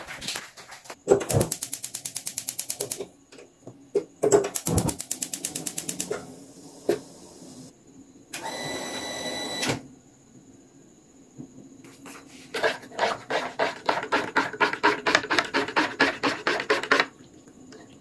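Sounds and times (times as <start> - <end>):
gas igniter clicking rapidly: 1.3 - 3.0, 4.5 - 6.2
gas burner rushing: 4.5 - 7.7.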